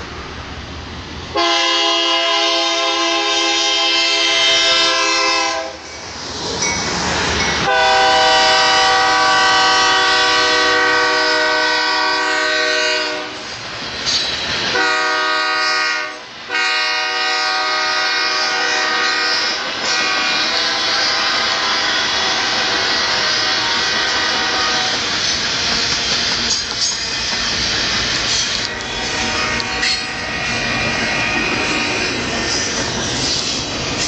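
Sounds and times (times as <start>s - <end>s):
freight train rumbling past: 0.0s - 34.0s
locomotive air horn blasts: 1.4s - 5.8s, 7.6s - 13.5s, 14.7s - 25.1s, 28.6s - 31.9s.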